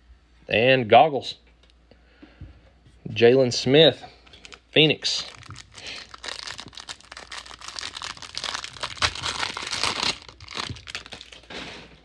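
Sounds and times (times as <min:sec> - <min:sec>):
plastic wrapper crinkling: 0:04.2 - 0:11.6.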